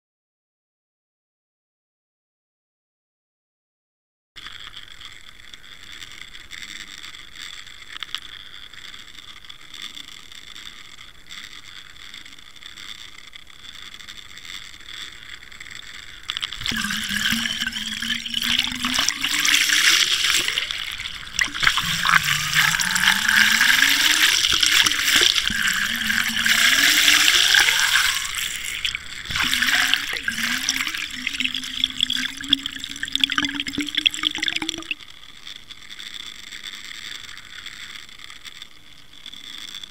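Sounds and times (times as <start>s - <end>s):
water churning and bubbling: 16.2s - 35.0s
water rushing: 16.4s - 35.0s.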